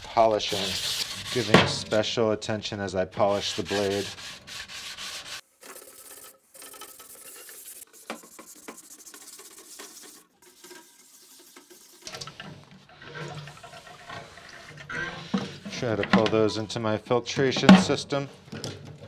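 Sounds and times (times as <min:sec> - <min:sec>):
wet sanding pad scrubbing: 0:00.4 - 0:02.0, 0:03.2 - 0:05.4, 0:07.2 - 0:12.0.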